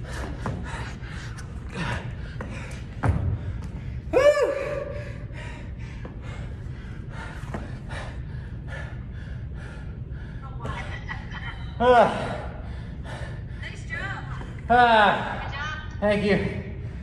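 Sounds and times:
man panting hard: 0.0s - 10.4s, 11.8s - 13.6s.

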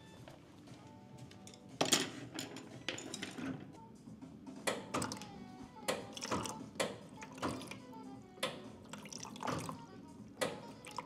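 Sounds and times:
quiet background music: 0.0s - 11.0s
kitchen items clicking and knocking: 1.4s - 3.8s, 4.7s - 7.8s.

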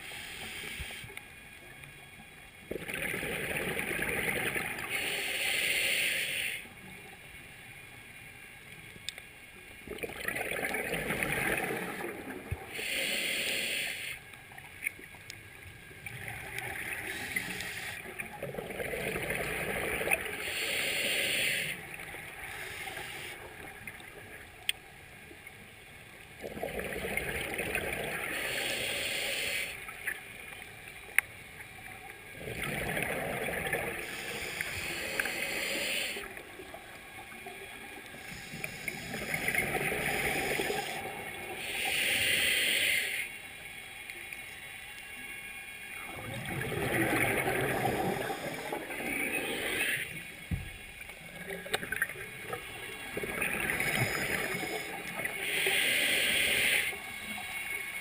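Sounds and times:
exhaled bubbles gurgling: 2.7s - 5.2s, 9.8s - 13.0s, 15.9s - 24.4s, 26.3s - 28.7s, 31.8s - 42.1s, 45.9s - 57.6s
diver breathing through regulator: 4.9s - 6.7s, 12.7s - 14.2s, 20.4s - 21.8s, 28.3s - 29.8s, 33.9s - 36.4s, 38.2s - 43.4s, 53.7s - 57.1s.

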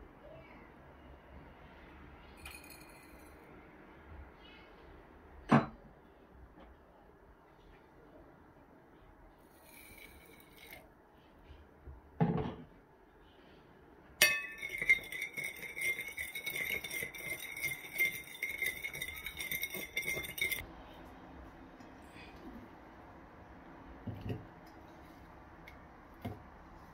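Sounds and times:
metal spoon stirring in glass bowl: 9.5s - 10.8s, 14.2s - 20.6s.

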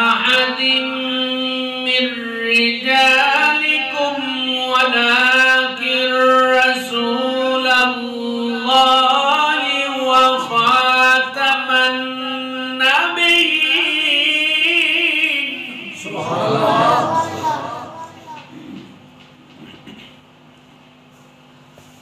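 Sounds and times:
man chanting melodically: 0.0s - 18.4s.

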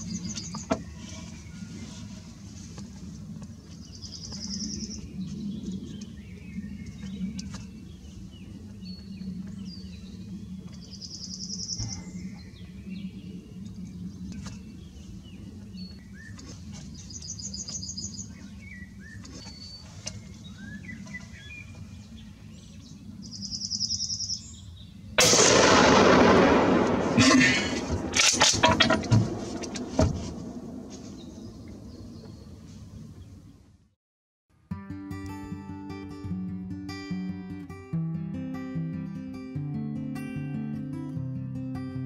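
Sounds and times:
birds singing: 0.0s - 2.1s, 3.6s - 25.6s, 28.0s - 33.7s
rifle shot: 25.2s - 31.1s
steady low hum: 25.2s - 33.5s.

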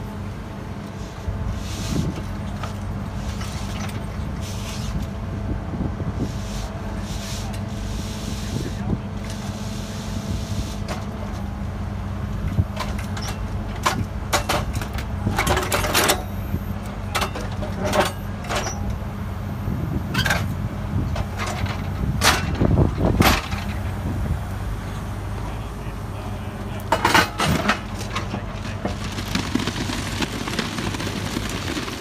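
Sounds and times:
diesel engine running: 0.0s - 32.0s.

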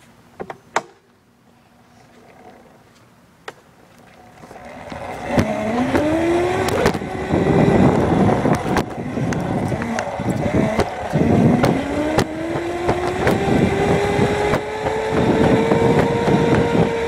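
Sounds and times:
electric scooter motor whine: 3.9s - 17.0s.

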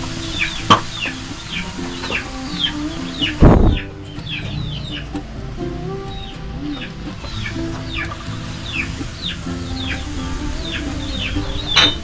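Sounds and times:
chickens cheeping: 0.0s - 12.0s
loud muffled thump: 3.4s - 3.8s.

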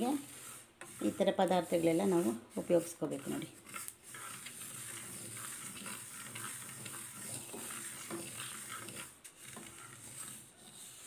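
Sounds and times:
seeds rustling in a pan: 0.0s - 11.0s.

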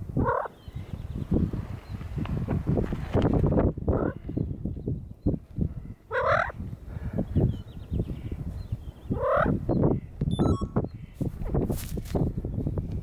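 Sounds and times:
bird rising calls: 7.2s - 11.2s.

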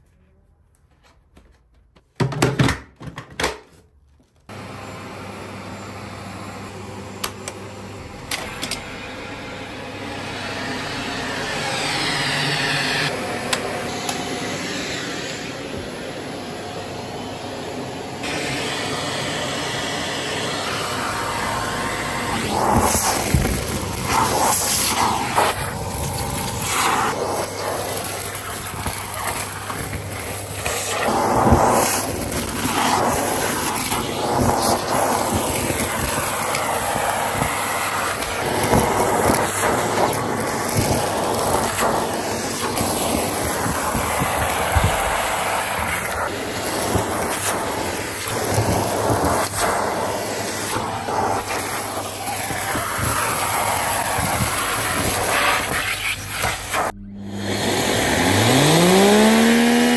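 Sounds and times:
vacuum cleaner suction: 4.5s - 59.9s.

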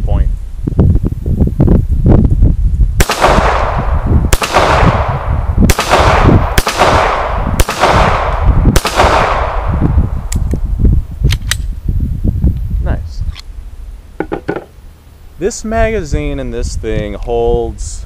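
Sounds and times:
pistol shots echoing: 3.0s - 9.8s.

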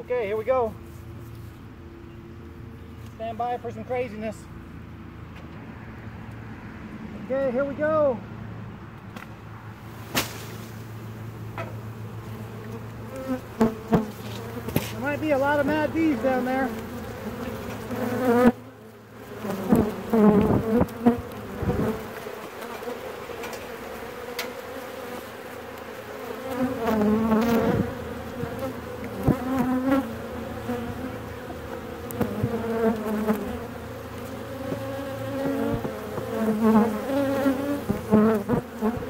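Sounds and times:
bee swarm buzzing: 9.6s - 39.0s
single bees humming past: 9.6s - 39.0s.

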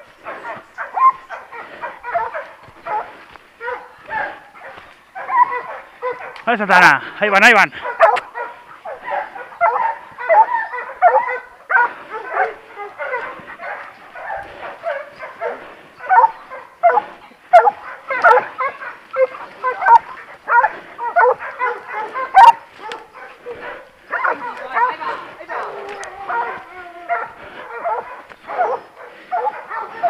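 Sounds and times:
dogs barking and yelping: 0.0s - 6.8s, 7.4s - 30.0s.

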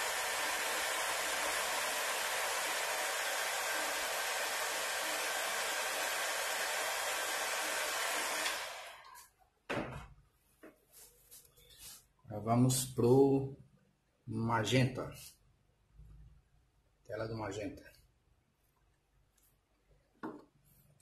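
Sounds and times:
heat gun blowing hot air: 0.0s - 9.2s.

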